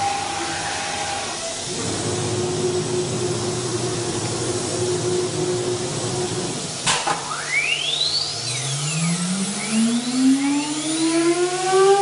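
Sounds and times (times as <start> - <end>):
sharp burst of noise: 7.2 - 12.0
router spindle whine rising: 7.4 - 12.0.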